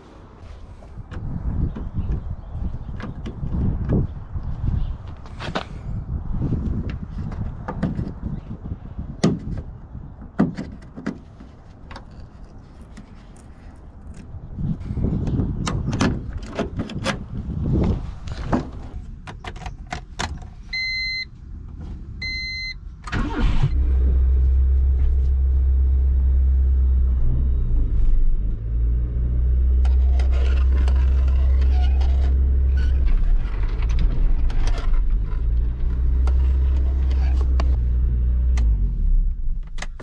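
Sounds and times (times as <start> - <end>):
car engine starting and idling: 23.0 - 40.0.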